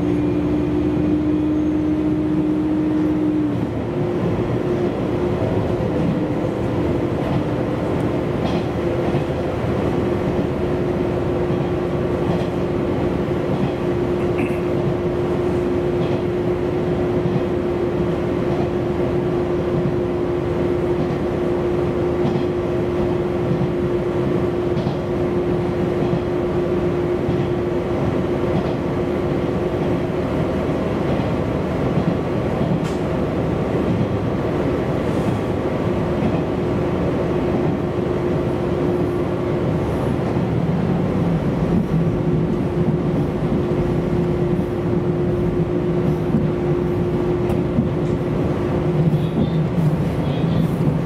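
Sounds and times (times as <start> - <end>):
train engine and wheels rumbling: 0.0 - 51.0.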